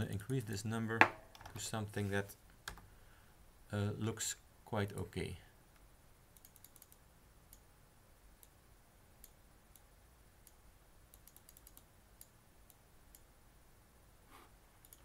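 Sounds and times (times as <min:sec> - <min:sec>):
computer mouse clicks: 0:06.4 - 0:07.7, 0:09.2 - 0:13.3.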